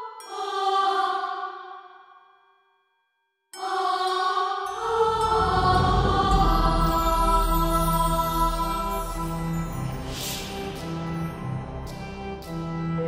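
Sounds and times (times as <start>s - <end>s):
deep low rumble: 5.0s - 11.4s.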